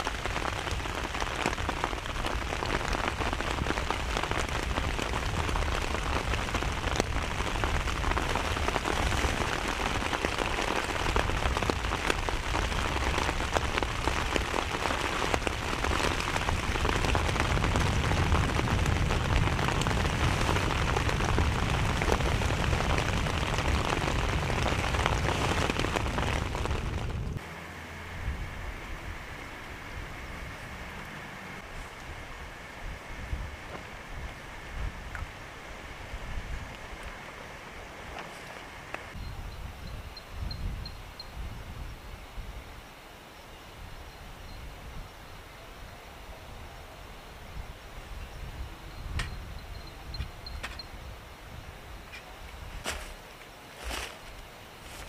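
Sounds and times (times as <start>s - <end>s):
heavy rain falling: 0.0s - 39.2s.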